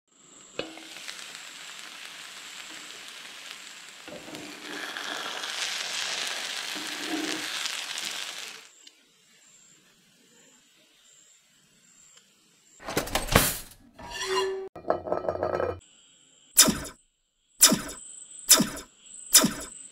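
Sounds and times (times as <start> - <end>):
food sizzling in a frying pan: 0.1 - 12.8.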